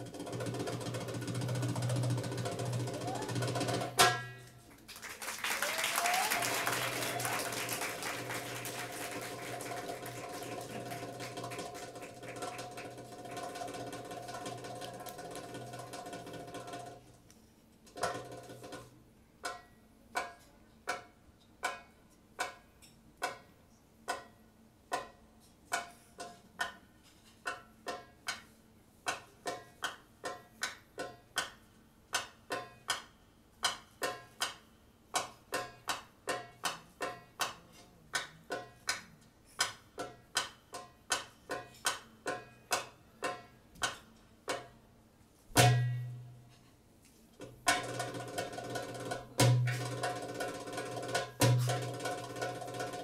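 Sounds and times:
taps on a hand drum: 10.6 - 17.0, 35.2 - 44.7, 47.4 - 53.0.

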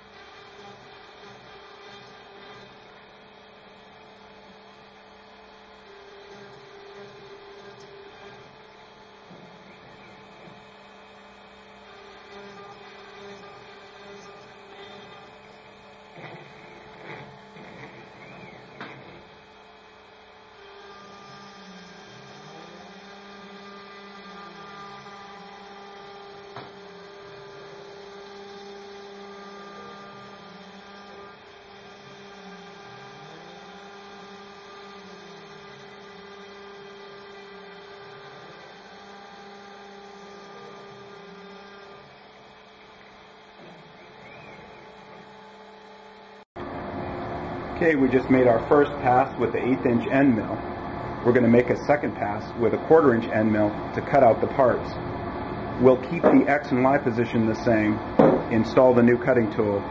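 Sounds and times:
cnc router spindle humming: 0.0 - 59.9
knocks: 58.2 - 58.5.

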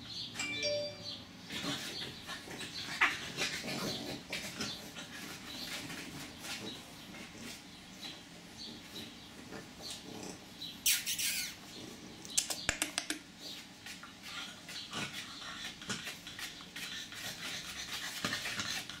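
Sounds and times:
puppy claws clicking on tiles: 12.3 - 19.0.

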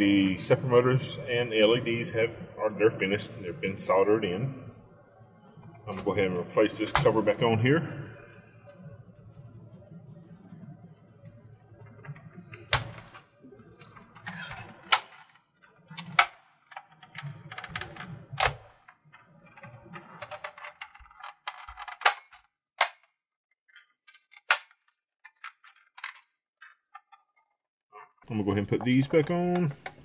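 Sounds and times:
plastic rubbing and handling: 5.2 - 22.5, 28.2 - 30.0.

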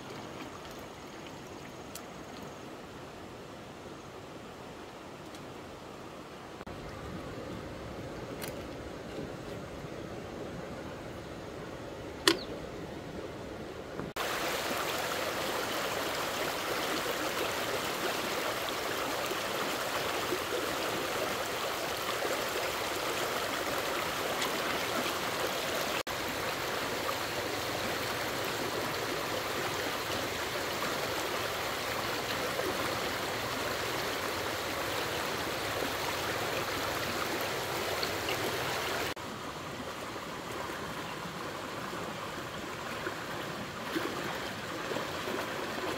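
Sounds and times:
stream water rushing: 0.0 - 45.9
sharp click: 12.2 - 12.5.

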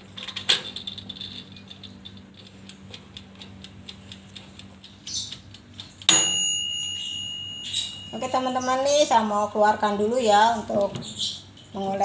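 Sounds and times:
mechanical timer ticking: 1.4 - 10.6
timer bell ding: 6.1 - 9.4.

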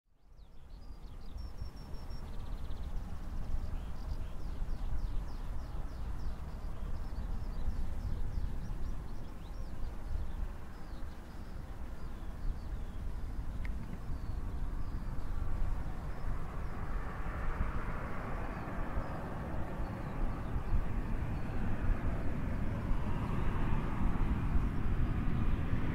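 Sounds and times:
songbird chirping: 0.1 - 23.7
low fluttering rumble: 0.4 - 25.9.

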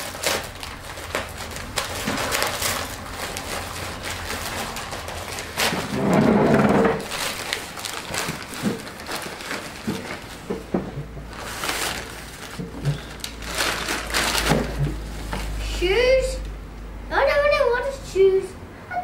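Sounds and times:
wrapping paper tearing and crumpling: 0.0 - 10.6, 11.2 - 15.6.

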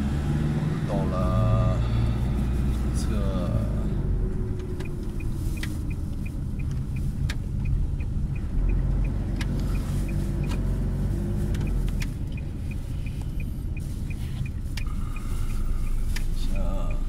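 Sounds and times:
car engine and road rumble: 0.0 - 17.0
faint high ticking: 11.6 - 17.0.

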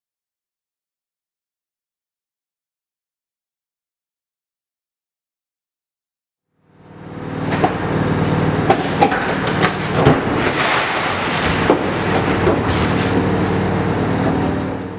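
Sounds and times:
machine engine running: 6.6 - 14.9
masonry crashing and breaking: 7.3 - 13.5.

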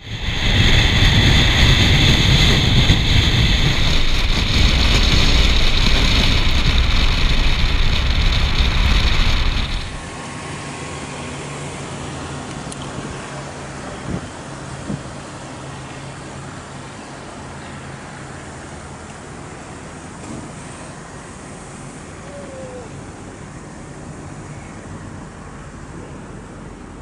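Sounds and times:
wind rushing over camera: 0.0 - 10.2, 12.4 - 16.8
low road rumble: 0.0 - 27.0.

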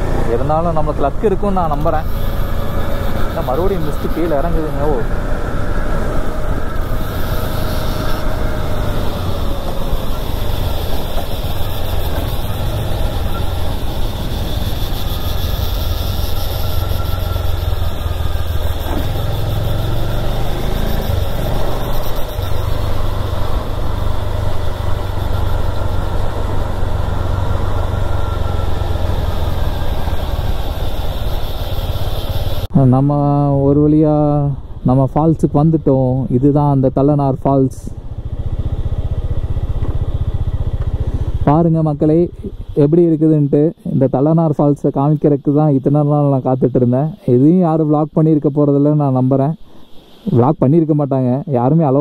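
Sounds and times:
motorcycle engine running: 0.0 - 32.7, 37.0 - 43.2.

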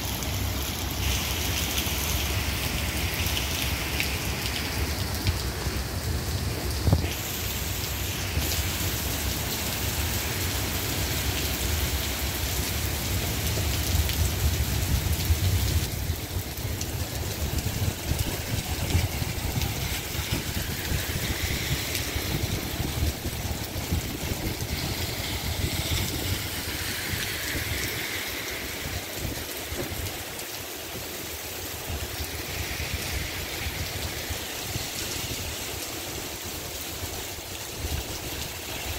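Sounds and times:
cars passing on wet pavement: 0.0 - 38.9
heavy rain on street: 0.0 - 38.9.

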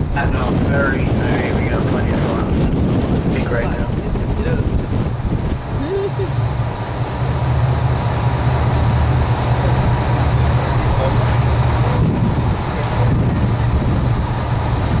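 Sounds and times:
boat engine droning: 0.0 - 15.0
water noise: 0.0 - 15.0
wind rushing: 0.0 - 15.0.

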